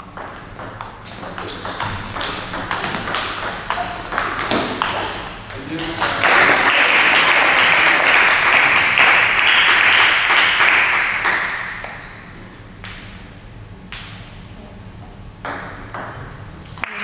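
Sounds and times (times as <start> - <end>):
table tennis ball bouncing: 0.0 - 6.6, 12.8 - 13.3, 15.4 - 17.0
applause: 5.8 - 11.8.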